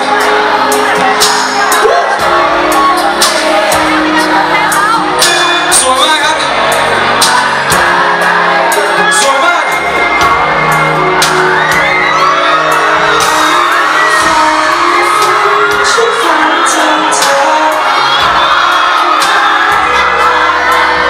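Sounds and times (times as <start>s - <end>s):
drum and cymbal hits: 0.0s - 11.9s
crowd whooping and shouting: 0.0s - 21.0s
live band playing: 0.0s - 21.0s
man singing into microphone: 5.0s - 10.0s, 12.8s - 21.0s.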